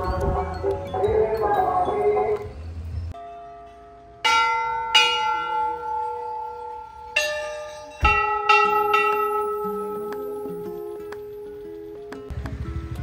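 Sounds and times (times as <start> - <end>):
temple bells ringing: 0.0 - 12.3.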